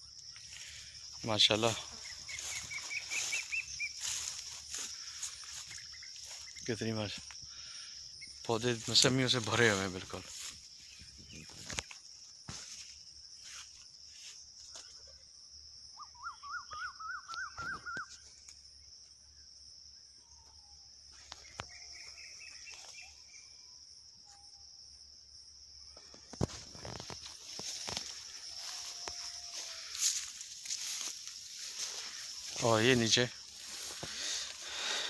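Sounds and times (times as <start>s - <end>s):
high-pitched insect drone: 0.0s - 35.0s
bird calls: 0.4s - 6.8s, 15.9s - 18.5s.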